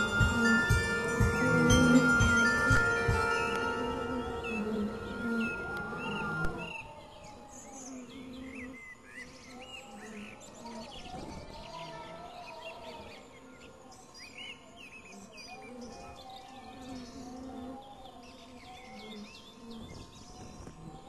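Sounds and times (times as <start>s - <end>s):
hurdy-gurdy drone through speaker: 0.0s - 7.0s
birds chirping: 0.0s - 21.0s.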